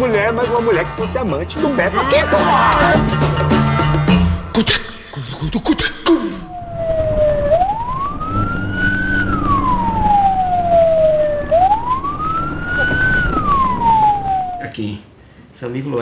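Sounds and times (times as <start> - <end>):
traffic hum: 4.6 - 15.6
wailing siren: 6.2 - 14.7.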